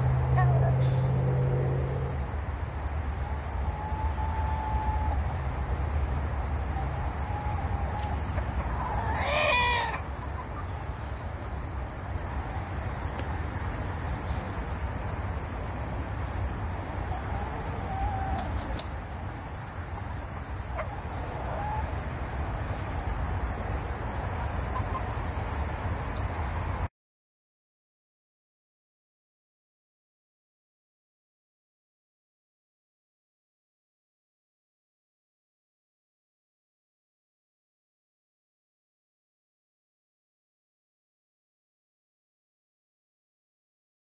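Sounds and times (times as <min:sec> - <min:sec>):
rooster crowing: 0:06.8 - 0:10.1.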